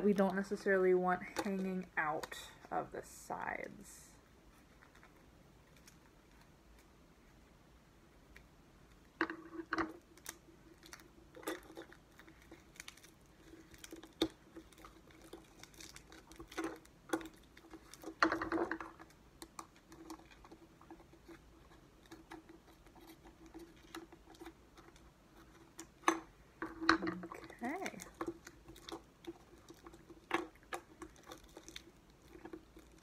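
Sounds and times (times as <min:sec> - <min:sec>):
plastic paper crinkling: 0:10.1 - 0:25.8.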